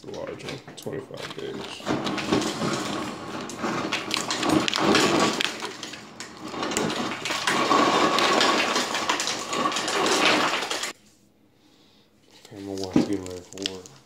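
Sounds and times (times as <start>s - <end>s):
plastic packaging crinkling: 1.3s - 11.0s, 12.6s - 14.0s.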